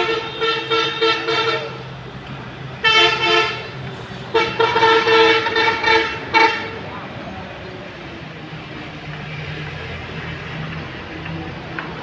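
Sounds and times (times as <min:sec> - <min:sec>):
vehicle horns honking: 0:00.0 - 0:01.8, 0:02.8 - 0:06.8.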